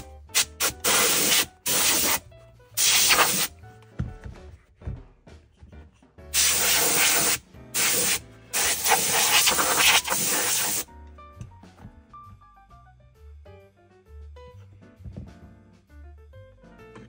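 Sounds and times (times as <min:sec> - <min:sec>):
canned air duster hissing: 0:00.0 - 0:02.2, 0:02.8 - 0:03.5, 0:06.4 - 0:10.9.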